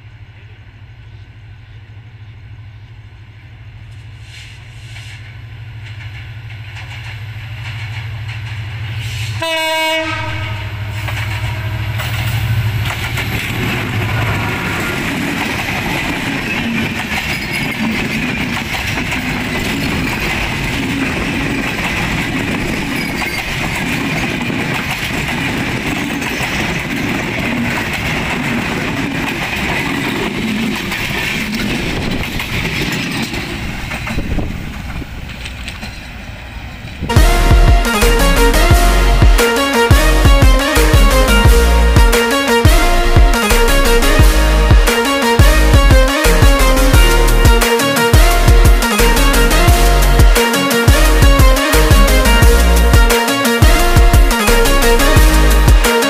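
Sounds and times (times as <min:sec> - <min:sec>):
locomotive engine hum: 0:00.0 - 0:53.0, 0:53.6 - 0:55.8
train coaches rumbling past: 0:00.0 - 0:56.0
train horn blast: 0:09.0 - 0:16.0, 0:37.0 - 0:56.0
wheel clatter over rail joints: 0:11.0 - 0:37.1.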